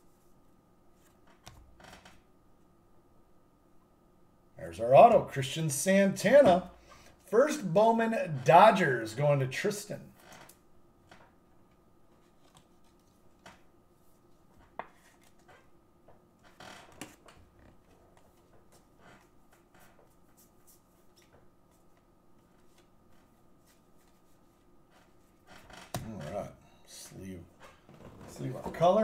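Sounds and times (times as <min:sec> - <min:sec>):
cards flipped by hand: 0:12.2 - 0:13.2.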